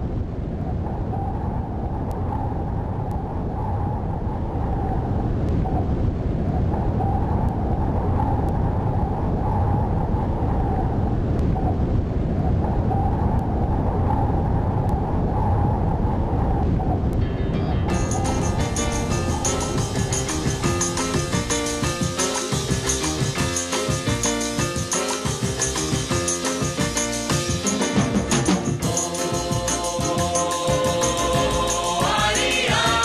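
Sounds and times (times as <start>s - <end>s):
low rumble of wind: 0.0s - 22.0s.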